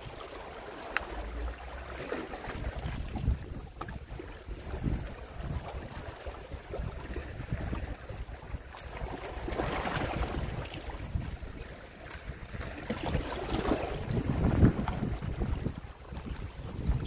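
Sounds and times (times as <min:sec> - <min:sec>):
small waves washing on shore: 0:00.0 - 0:17.0
wind buffeting microphone: 0:00.0 - 0:17.0.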